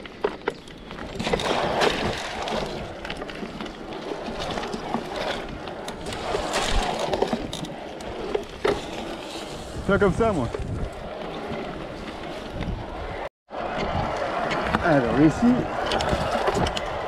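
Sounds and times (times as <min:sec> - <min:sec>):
bike knocks and rattles: 0:00.0 - 0:12.8
bike tyres squelching through mud: 0:00.0 - 0:13.2.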